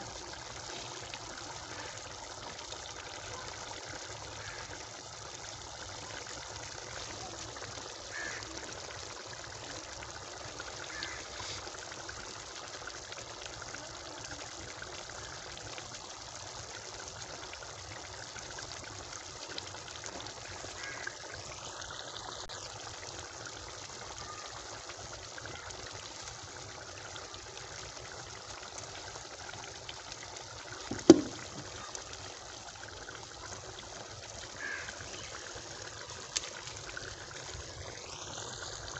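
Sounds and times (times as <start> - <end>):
broth boiling in a pot: 0.0 - 38.9
sharp knock: 30.9 - 31.4.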